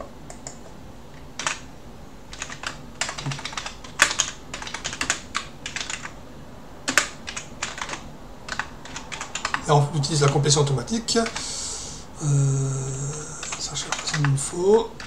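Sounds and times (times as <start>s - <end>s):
computer keyboard typing: 1.4s - 1.6s, 2.3s - 6.2s, 6.9s - 10.4s, 11.2s - 11.5s, 13.0s - 15.0s.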